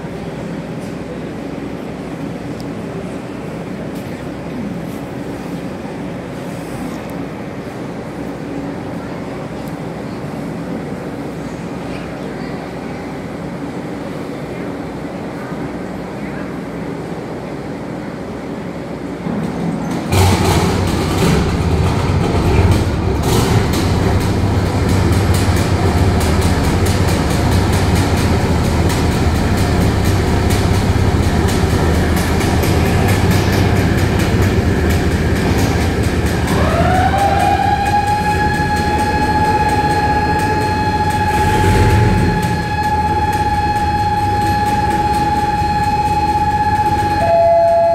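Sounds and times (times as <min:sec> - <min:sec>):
diesel engines humming: 0:20.1 - 0:47.9
warning siren: 0:20.1 - 0:47.9.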